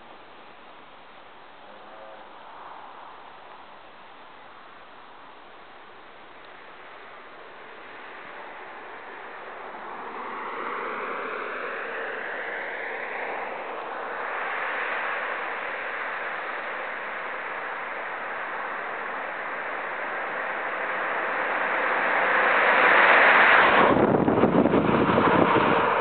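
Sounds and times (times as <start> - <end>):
vehicle engine approaching: 6.1 - 26.0
wind buffeting: 7.6 - 26.0.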